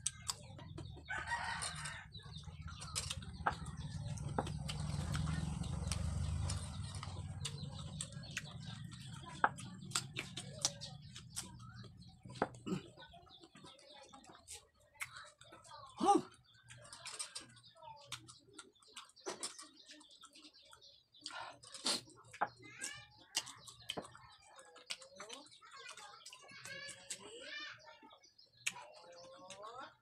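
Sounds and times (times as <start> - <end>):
chickens clucking: 0.0 - 15.9
chickens pecking clicks: 2.6 - 11.8, 16.5 - 27.6.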